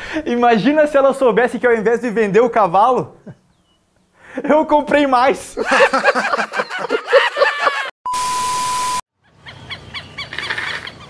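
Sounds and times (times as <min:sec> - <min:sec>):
man laughing: 0:05.5 - 0:07.9
beep tone over hiss: 0:08.1 - 0:09.0.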